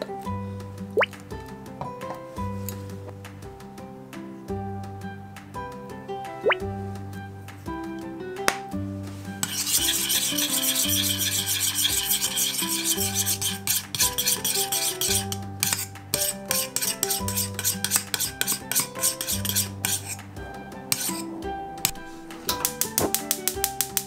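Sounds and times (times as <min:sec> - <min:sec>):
background music with bass: 0:00.0 - 0:24.0
metal spoon scraping steel bowl: 0:09.4 - 0:23.0.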